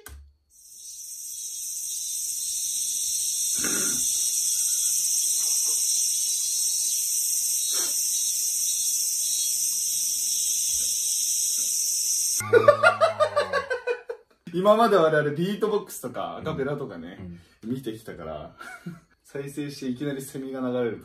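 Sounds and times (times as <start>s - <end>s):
cicadas buzzing: 0.4s - 14.0s.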